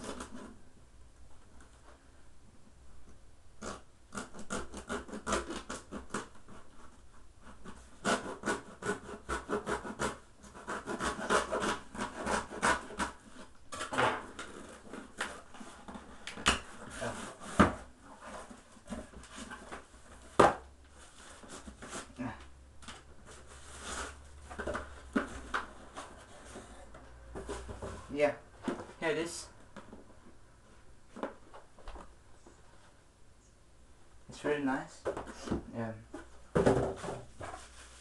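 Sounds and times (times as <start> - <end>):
knife scraping packing tape: 3.6 - 6.7, 7.6 - 15.6, 23.6 - 24.2.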